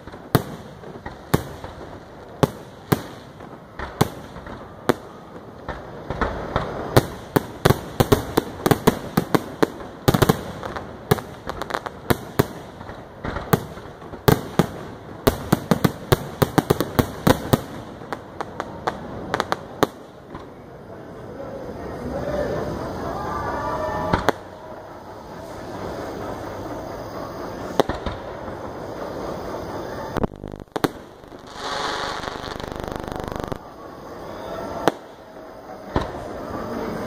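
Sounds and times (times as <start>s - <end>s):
firework shells bursting: 30.2s - 33.6s.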